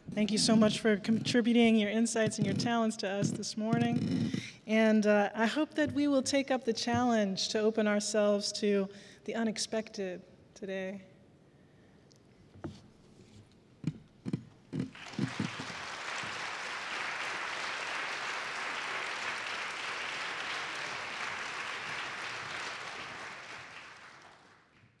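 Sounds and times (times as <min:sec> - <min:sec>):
audience applause: 0:14.9 - 0:24.8.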